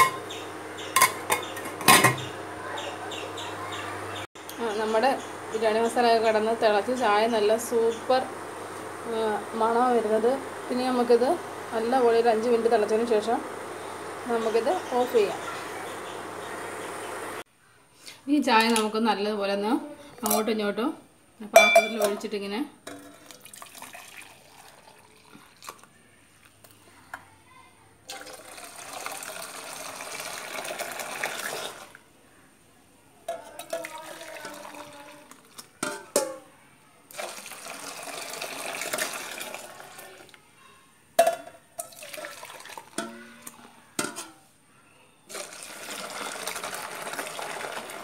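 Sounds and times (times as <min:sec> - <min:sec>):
steel vessels clinking: 0:00.0 - 0:00.3, 0:00.9 - 0:02.3, 0:21.6 - 0:23.8, 0:41.2 - 0:44.5
tea pouring into steel mug: 0:23.2 - 0:25.9, 0:41.8 - 0:43.0, 0:45.3 - 0:48.0.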